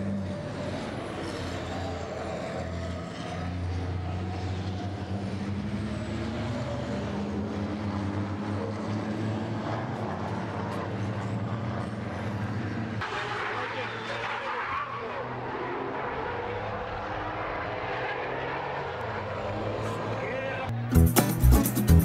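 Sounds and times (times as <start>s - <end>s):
truck diesel engines droning: 0.0s - 22.0s.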